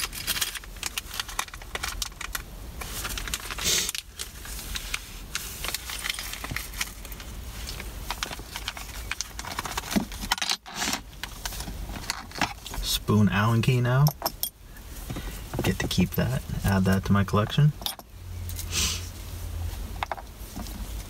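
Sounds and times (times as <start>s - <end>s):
metal bolts clinking: 14.0s - 14.6s, 17.8s - 18.1s.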